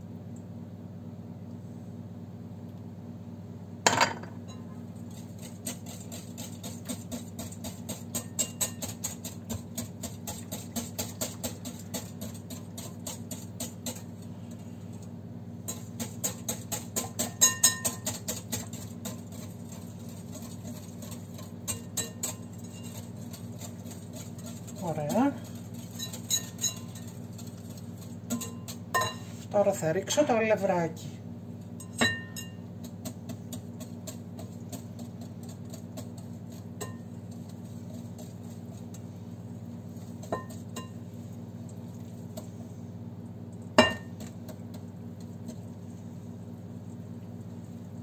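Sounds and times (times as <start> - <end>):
whisk clinking in glass bowl: 4.4 - 14.2, 15.7 - 29.3, 31.8 - 42.0, 43.8 - 44.6.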